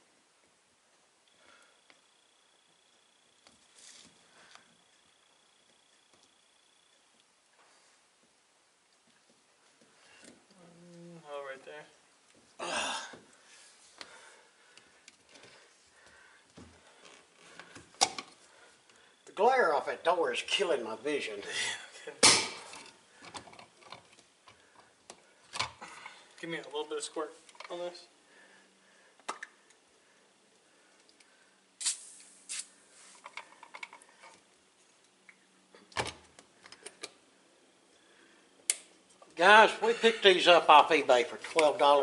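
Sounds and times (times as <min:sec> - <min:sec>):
spray bottle squirting: 0:31.8 - 0:32.8.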